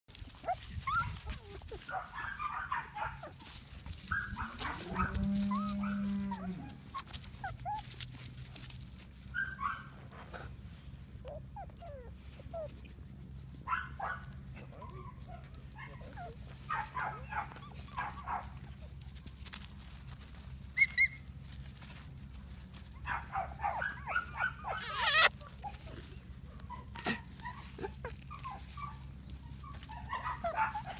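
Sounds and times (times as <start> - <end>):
puppies squealing and yipping: 0.2 - 10.5, 11.1 - 19.1, 20.4 - 22.1, 22.8 - 30.9
dog crying: 4.2 - 8.0, 23.4 - 25.9.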